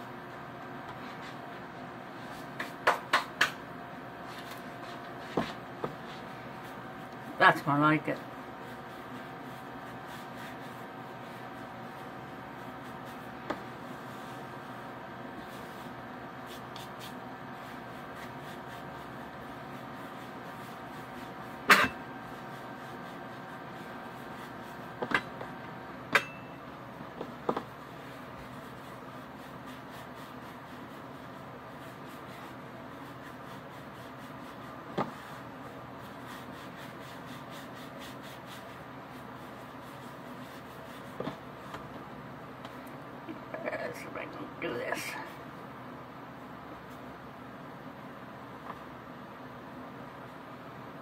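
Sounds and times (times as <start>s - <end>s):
steady hum: 0.0s - 51.0s
hands rubbing dough: 4.2s - 25.8s, 26.8s - 42.8s.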